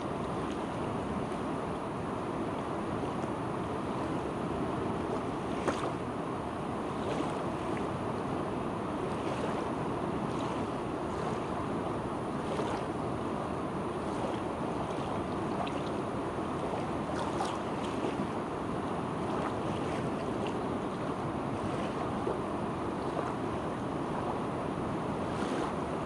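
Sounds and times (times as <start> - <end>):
water splashes: 5.0 - 6.1, 12.4 - 13.0, 14.0 - 26.0.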